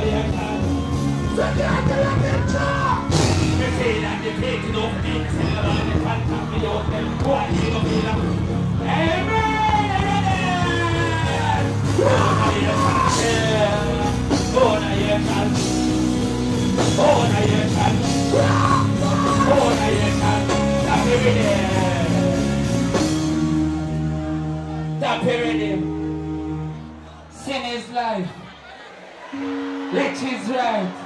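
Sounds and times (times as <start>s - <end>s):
man singing into a microphone: 0.0s - 8.4s, 10.6s - 15.6s, 16.9s - 22.2s.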